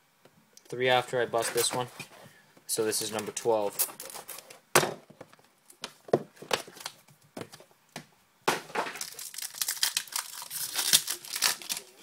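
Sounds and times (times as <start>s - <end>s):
plastic wrapping tearing and crinkling: 8.8s - 12.0s.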